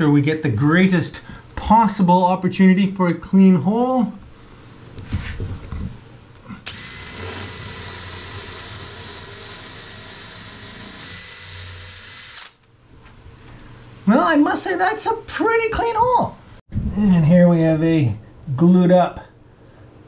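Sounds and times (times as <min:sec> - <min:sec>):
cordless drill boring wood: 0:06.7 - 0:12.6.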